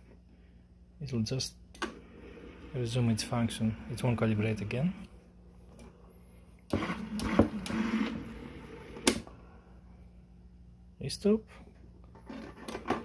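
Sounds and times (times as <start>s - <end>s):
low steady hum: 0.0s - 13.0s
linear actuator running: 6.7s - 9.2s.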